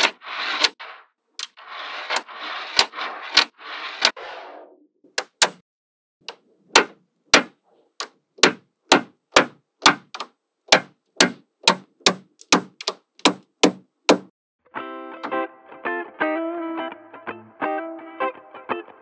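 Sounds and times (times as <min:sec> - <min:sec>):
guitar music: 0:14.6 - 0:19.0.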